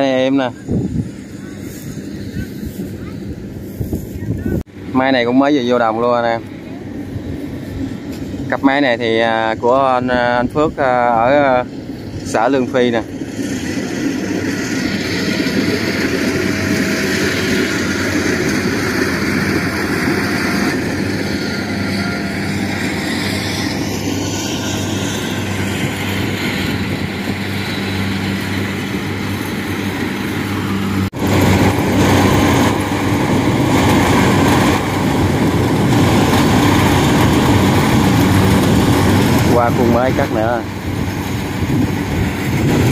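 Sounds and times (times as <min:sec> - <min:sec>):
combine harvester diesel engine: 0:00.0 - 0:42.9.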